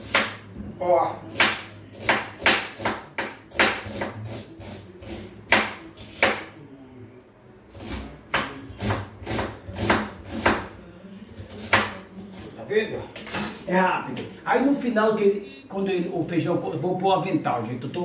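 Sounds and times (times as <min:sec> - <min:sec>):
knife chopping on wooden board: 0:00.0 - 0:00.4, 0:01.3 - 0:06.5, 0:07.7 - 0:10.7, 0:11.5 - 0:12.0.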